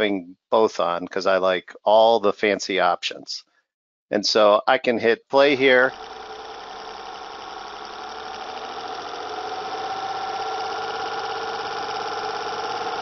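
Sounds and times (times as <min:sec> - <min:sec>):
engine note with stacked tones: 0:05.5 - 0:13.0.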